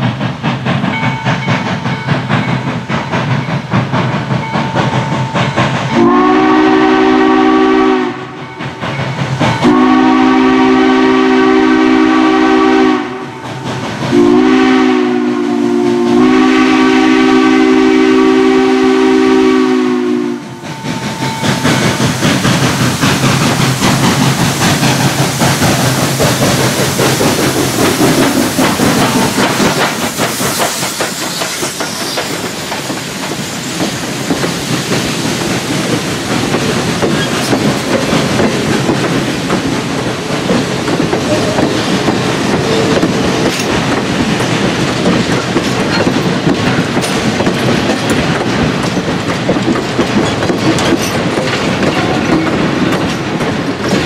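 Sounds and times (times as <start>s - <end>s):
steam locomotive exhaust: 0.0s - 54.0s
train cars clickety-clack on rails: 0.0s - 54.0s
steam whistle blasts: 6.0s - 8.4s, 9.6s - 13.4s, 14.1s - 20.6s.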